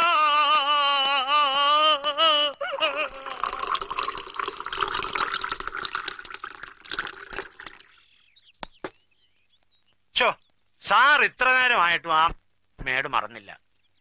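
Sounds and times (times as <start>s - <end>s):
drink pouring into ceramic cup: 3.0s - 8.0s.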